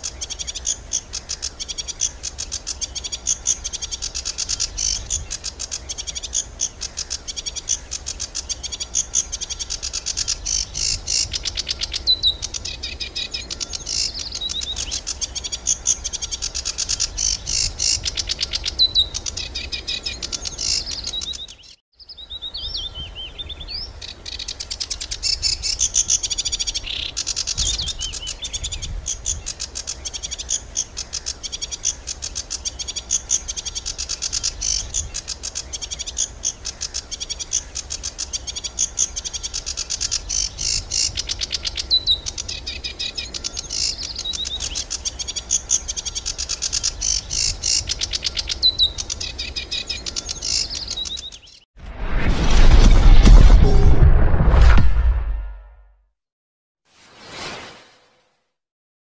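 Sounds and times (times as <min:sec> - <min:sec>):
songbird chirping and trilling: 0:00.0 - 0:51.7.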